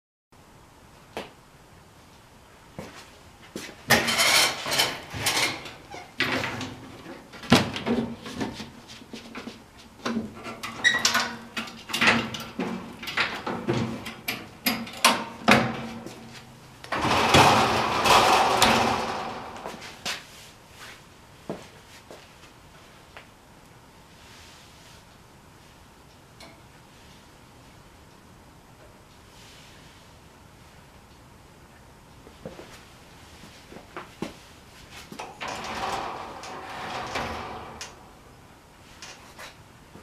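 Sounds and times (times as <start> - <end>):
faint steady hum: 0.4 - 40.0
machinery clunks and knocks: 16.9 - 20.0, 35.4 - 38.3.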